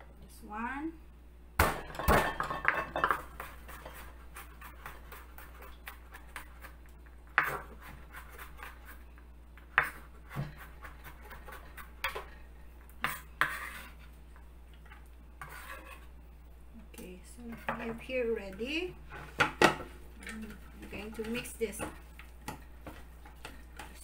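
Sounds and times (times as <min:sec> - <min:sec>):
dishes knocking and clinking: 0:01.6 - 0:03.3.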